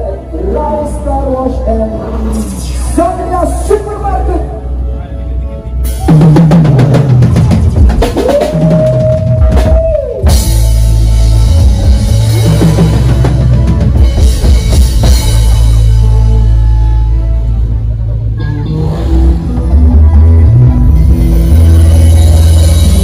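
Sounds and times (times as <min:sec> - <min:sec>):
live band playing loud: 0:00.0 - 0:23.0
drum fills: 0:05.9 - 0:16.9.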